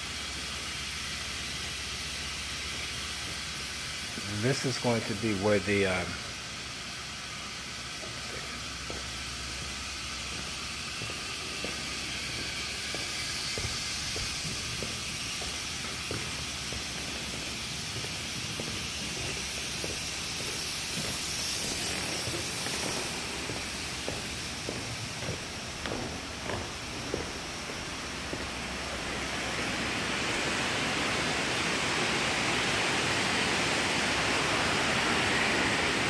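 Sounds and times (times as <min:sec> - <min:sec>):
steady hiss: 0:00.0 - 0:36.0
footsteps on concrete floor: 0:06.5 - 0:31.4.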